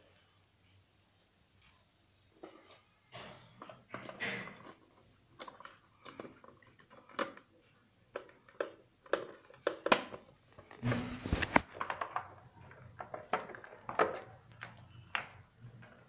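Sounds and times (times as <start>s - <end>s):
clicks taps and rustles of handling: 3.6s - 10.8s.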